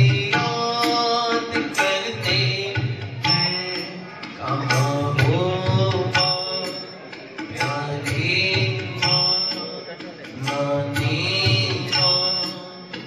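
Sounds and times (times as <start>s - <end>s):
hand drum: 0.0s - 13.0s
person singing devotional song: 7.5s - 12.9s.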